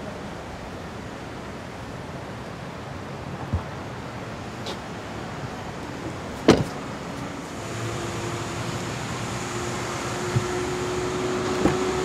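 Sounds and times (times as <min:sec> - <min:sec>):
car door latch clicking: 0:06.4 - 0:06.8.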